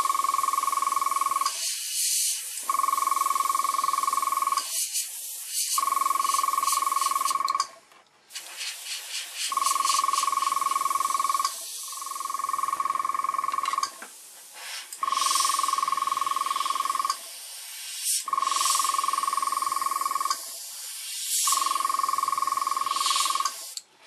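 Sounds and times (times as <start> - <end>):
airbrush spraying: 0.0 - 7.4, 8.3 - 12.6, 13.9 - 23.8.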